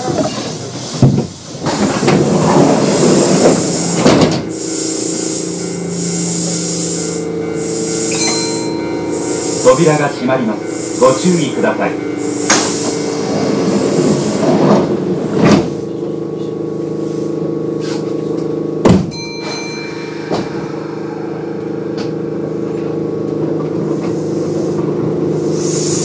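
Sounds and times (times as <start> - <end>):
train doors thudding shut: 0.0 - 5.4, 12.2 - 16.5, 18.8 - 20.8
train electrical hum: 0.0 - 26.0
train running noise: 0.0 - 26.0.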